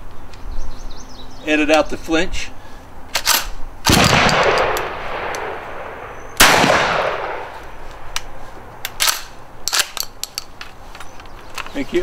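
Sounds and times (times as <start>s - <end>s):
muffled shotgun shot: 3.9s - 7.6s.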